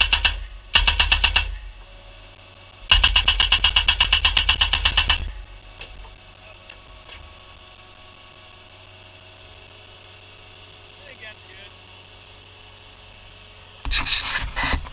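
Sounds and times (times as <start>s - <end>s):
post driver hammering post: 0.0s - 1.7s, 2.9s - 6.0s
faint steady hum: 0.0s - 14.9s.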